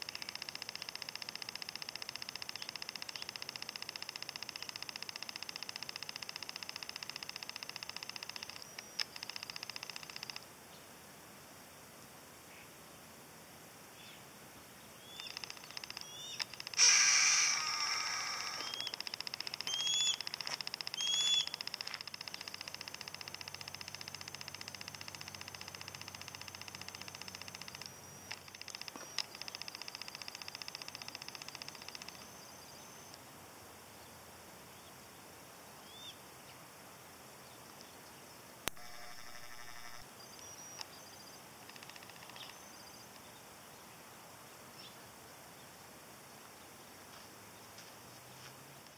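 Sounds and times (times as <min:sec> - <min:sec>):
hawks calling: 0:15.0 - 0:33.1
hawk squeals: 0:15.1 - 0:21.7
hawk screaming: 0:16.8 - 0:18.9.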